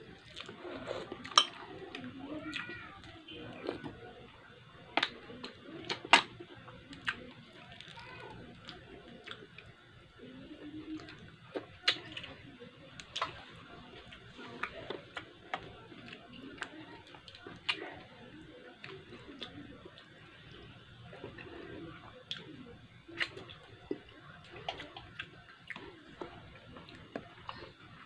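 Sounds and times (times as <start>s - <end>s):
person chewing: 0.2s - 2.7s.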